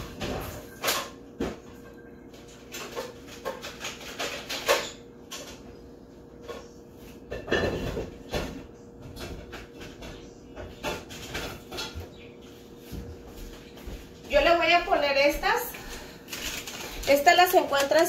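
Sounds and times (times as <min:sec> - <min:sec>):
kitchen items knocking and clacking: 0:00.0 - 0:05.7, 0:07.3 - 0:12.2, 0:16.3 - 0:18.0.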